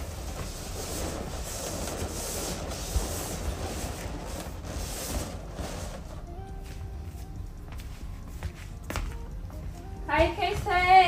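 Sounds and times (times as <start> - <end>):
balloons rubbing: 0.0 - 8.8.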